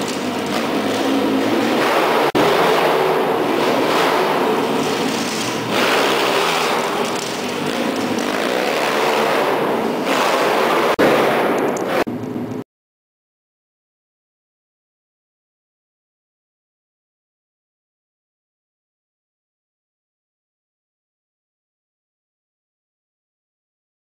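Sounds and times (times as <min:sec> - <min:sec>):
pit bike engine running hard: 0:00.0 - 0:12.1.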